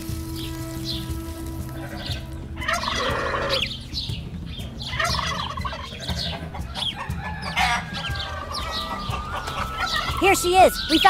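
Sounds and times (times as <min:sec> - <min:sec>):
turkey gobbling: 0:01.9 - 0:03.7, 0:04.8 - 0:10.4.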